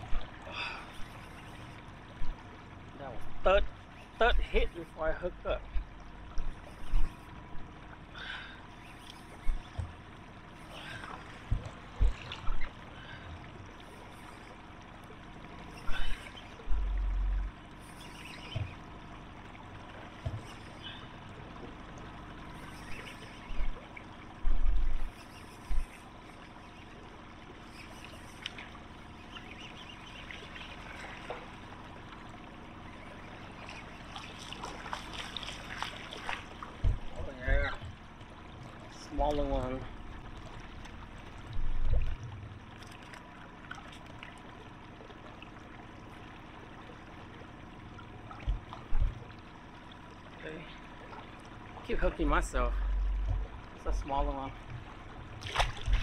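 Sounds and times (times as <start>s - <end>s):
water lapping against hull: 0.0s - 56.0s
deep dull thumps: 9.4s - 10.0s, 11.4s - 12.7s, 16.6s - 17.6s, 24.4s - 25.1s, 36.7s - 38.0s, 48.3s - 49.4s, 52.8s - 53.8s
low thumps: 11.4s - 12.7s, 36.7s - 38.0s, 52.8s - 54.0s.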